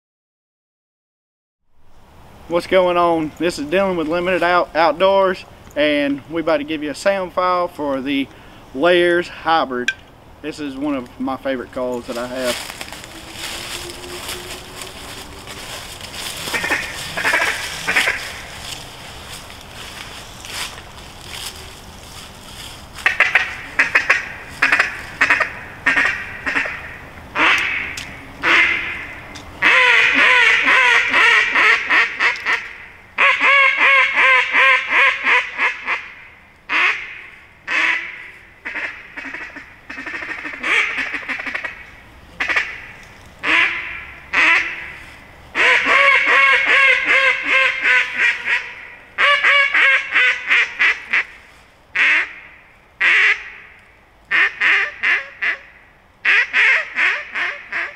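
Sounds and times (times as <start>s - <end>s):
duck call quacks: 12.4s - 18.4s, 23.0s - 41.8s, 42.4s - 45.0s, 45.6s - 51.4s, 52.0s - 53.7s, 54.3s - 57.9s
duck call rapid chattering: 16.3s - 18.4s, 23.0s - 29.0s, 29.6s - 36.1s, 36.7s - 41.8s, 42.4s - 45.0s, 45.6s - 51.3s, 52.0s - 52.4s, 53.0s - 53.6s, 54.3s - 57.9s.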